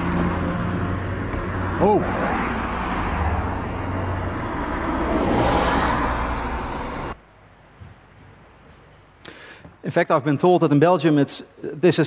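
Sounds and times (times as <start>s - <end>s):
car passing by: 0.0s - 7.2s
roadside traffic noise: 0.0s - 7.7s.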